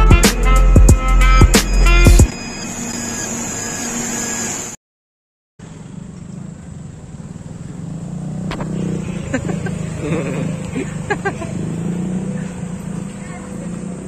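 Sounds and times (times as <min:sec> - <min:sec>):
vehicle engine running: 0:05.6 - 0:14.0.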